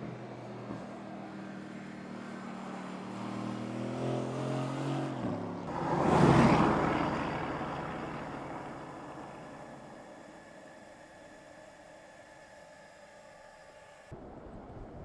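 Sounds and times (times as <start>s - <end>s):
car engine accelerating: 0.0s - 11.4s
car passing by: 0.0s - 11.4s.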